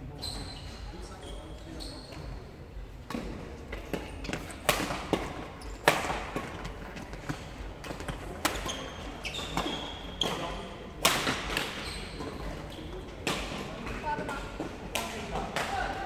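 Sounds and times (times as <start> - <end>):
shoes squeaking on court floor: 0.0 - 14.8
rackets hitting shuttlecock: 3.1 - 8.7, 9.4 - 12.4, 13.2 - 16.0.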